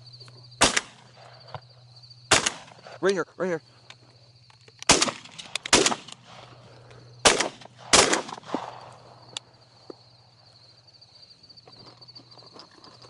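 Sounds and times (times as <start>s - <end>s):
shotgun shots: 0.6s - 1.2s, 2.3s - 2.9s, 4.9s - 6.5s, 7.2s - 8.9s.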